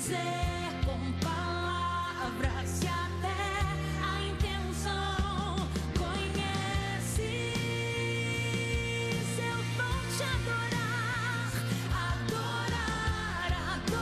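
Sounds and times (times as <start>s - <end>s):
backing band with bass and drums: 0.0s - 14.0s
woman singing into microphone: 0.0s - 14.0s.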